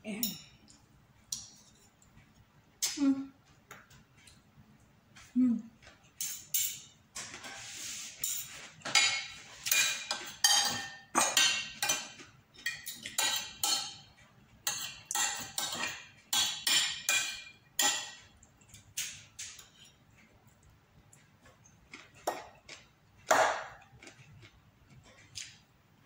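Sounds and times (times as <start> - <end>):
cutlery clinking on ceramic plate: 6.2 - 7.5, 8.2 - 20.0.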